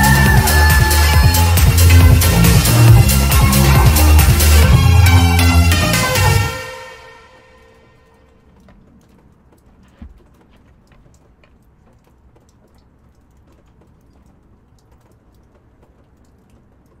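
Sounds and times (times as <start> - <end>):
hens ticking and tapping on roost: 8.4 - 17.0.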